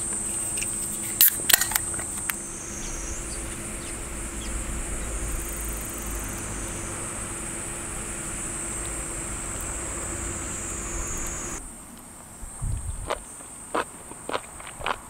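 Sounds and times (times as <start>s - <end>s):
faint low hum: 0.0s - 13.2s
insect chorus: 0.0s - 15.0s
low rumble: 2.3s - 11.7s.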